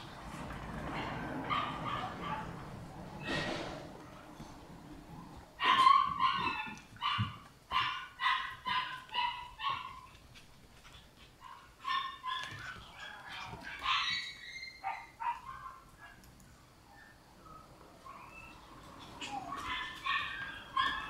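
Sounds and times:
puppy whining: 5.6s - 10.1s, 10.8s - 15.7s, 16.9s - 21.0s
puppy yipping: 5.6s - 10.1s, 11.4s - 16.2s, 18.1s - 21.0s.

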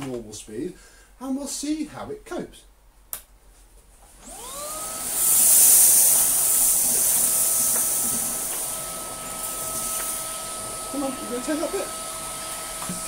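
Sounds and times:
vacuum head on carpet: 4.2s - 13.0s
vacuum motor whine and hiss: 4.2s - 13.0s.

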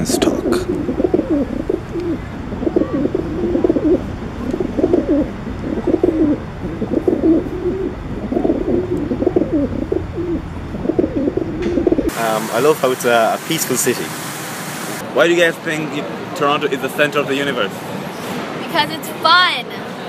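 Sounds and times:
pigeons cooing: 0.0s - 12.1s.

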